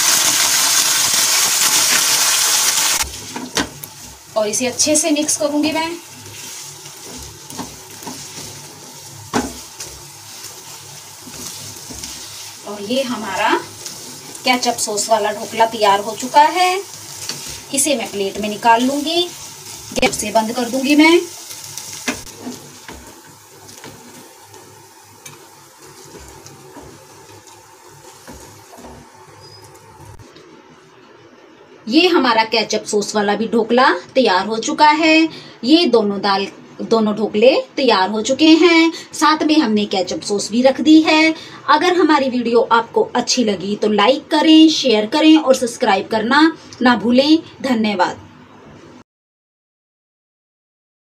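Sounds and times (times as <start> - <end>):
food sizzling in a frying pan: 0.0 - 30.3
spatula scraping and knocking pan: 6.2 - 10.6, 11.2 - 12.4, 21.9 - 30.2.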